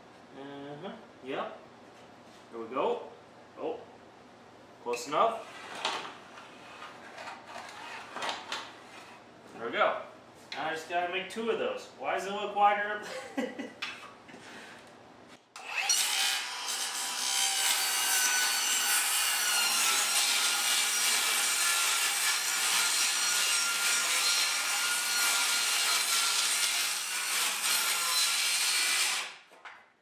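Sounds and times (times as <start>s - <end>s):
circular saw cutting plywood: 15.6s - 29.3s.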